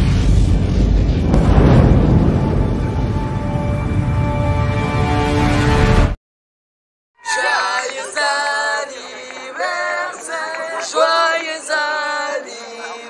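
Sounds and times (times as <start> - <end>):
people singing together: 7.2 - 13.0.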